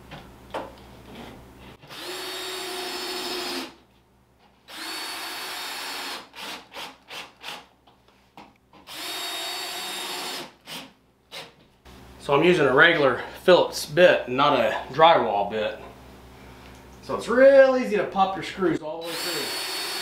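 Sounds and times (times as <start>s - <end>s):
cordless drill driving screws: 1.9s - 3.7s, 4.7s - 7.6s, 8.9s - 11.5s, 19.0s - 20.0s
drill trigger bursts: 1.9s - 3.8s, 4.7s - 7.6s, 8.9s - 11.5s, 19.0s - 20.0s.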